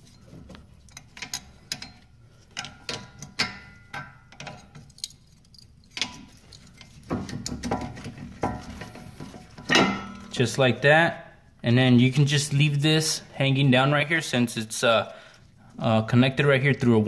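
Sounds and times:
metallic clicks and knocks: 0.4s - 10.4s.

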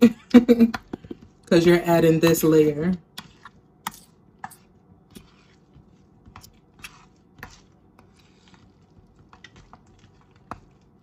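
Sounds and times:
thick mixture squishing: 2.4s - 11.0s.

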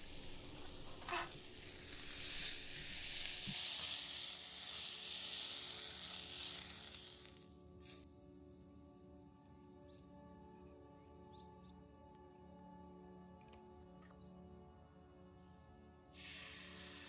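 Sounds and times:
omelette sizzling in a frying pan: 0.0s - 7.5s, 16.2s - 17.0s
soft music: 7.4s - 17.0s.

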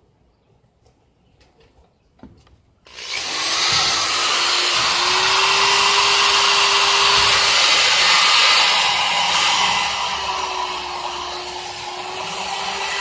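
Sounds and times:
power tool motor running: 2.9s - 13.0s.

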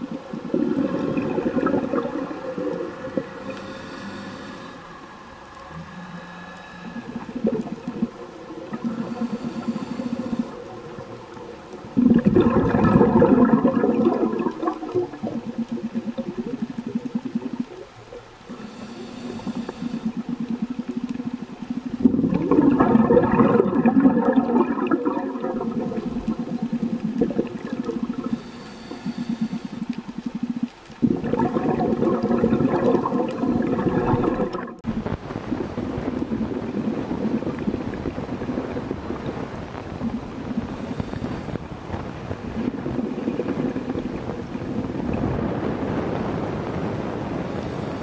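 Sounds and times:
regulator exhale bubbling: 0.0s - 48.0s
underwater noise: 0.0s - 48.0s.

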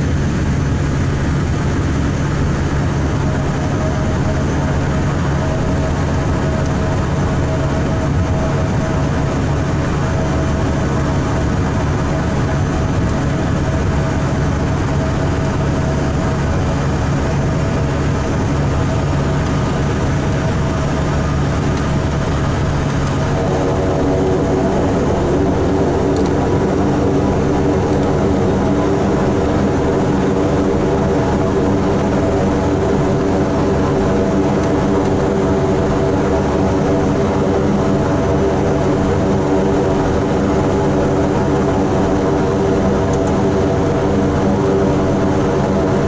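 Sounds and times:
turboprop engines running: 0.0s - 46.0s.

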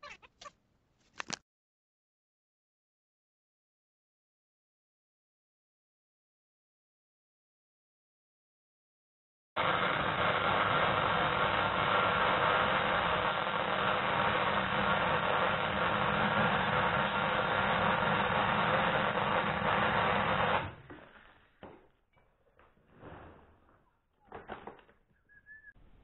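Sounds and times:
welding arc buzzing: 9.6s - 20.8s.

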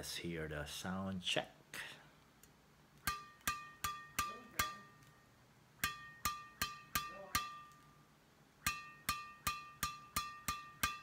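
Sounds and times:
racket strings pinging on palm: 3.0s - 8.0s, 8.6s - 11.0s.

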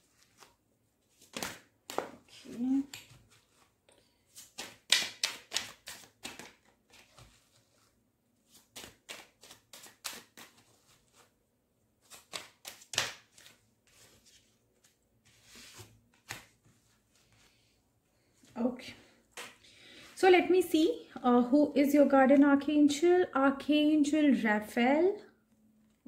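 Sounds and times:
cards being shuffled: 0.0s - 11.3s, 12.0s - 17.4s.

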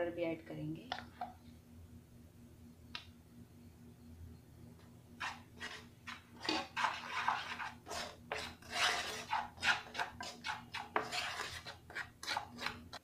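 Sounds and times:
wooden spoon scraping a pan: 5.2s - 13.0s.

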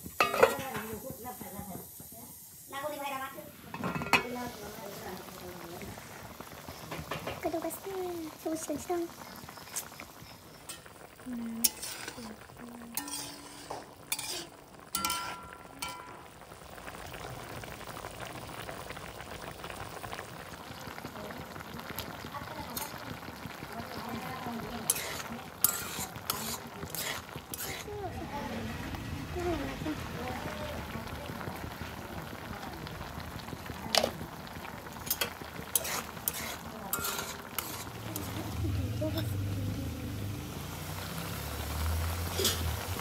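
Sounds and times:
curry bubbling in a pot: 0.0s - 43.0s
faint steady hiss: 0.0s - 43.0s
metal utensil clanking on pot: 0.2s - 1.0s, 3.7s - 4.4s, 11.6s - 12.3s, 12.9s - 16.3s, 24.9s - 27.9s, 35.0s - 38.3s, 42.3s - 42.7s
clicks and scrapes of eating: 24.9s - 27.9s, 35.0s - 38.3s.

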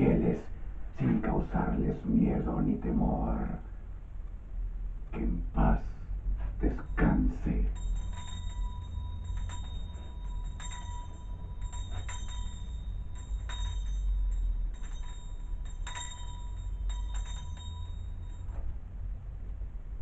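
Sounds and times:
steady low hum: 0.0s - 20.0s
bell-like chimes: 6.8s - 18.8s.

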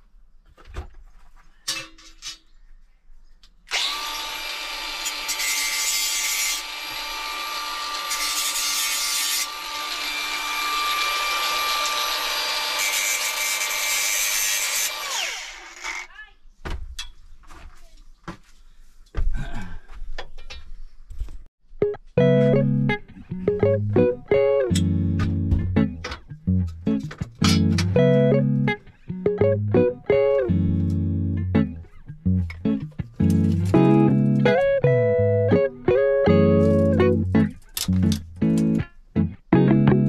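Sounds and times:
power tool whining and cutting: 3.7s - 16.1s
knocks and thumps: 16.6s - 18.4s, 25.2s - 26.3s.

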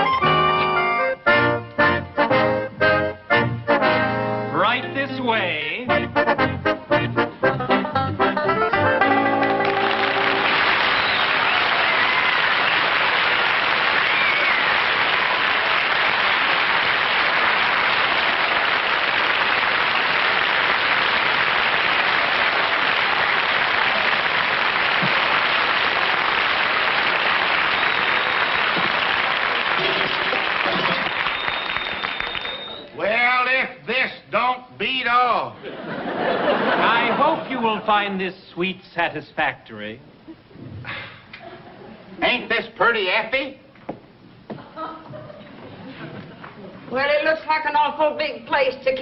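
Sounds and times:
studio audience applauding: 9.4s - 33.0s.

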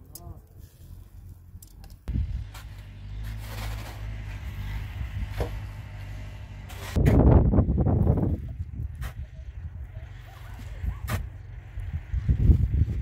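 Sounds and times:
tractor engine running: 0.9s - 13.0s.

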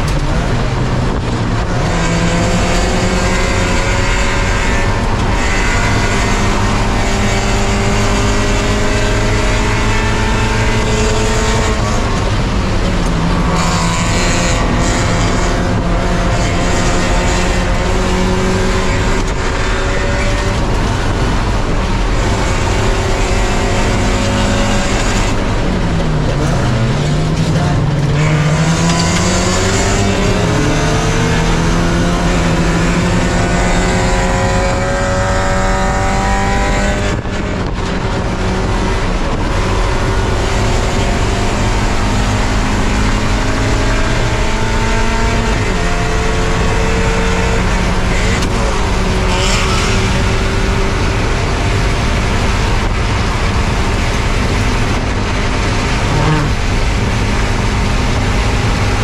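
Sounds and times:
race car engine revving: 0.0s - 59.0s
wind and road noise: 0.0s - 59.0s.

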